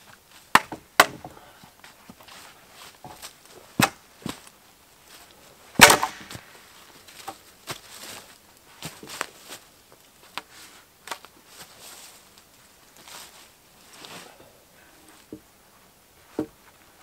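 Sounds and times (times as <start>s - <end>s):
footsteps rustling in dry leaves: 1.8s - 14.4s.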